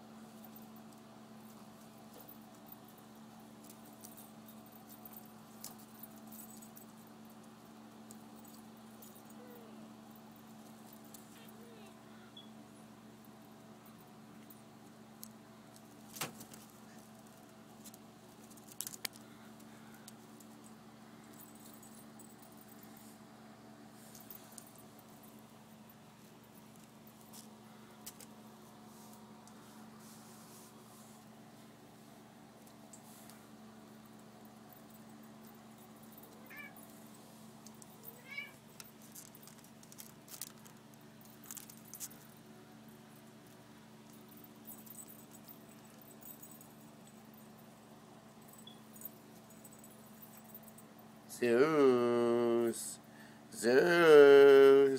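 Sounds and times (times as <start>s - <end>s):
faint steady hum: 0.0s - 54.9s
light metallic clinks: 0.4s - 11.7s, 16.6s - 23.2s, 24.0s - 28.4s, 32.6s - 51.2s
wire cage rattling: 37.6s - 42.2s
kitten mewing: 38.1s - 38.6s.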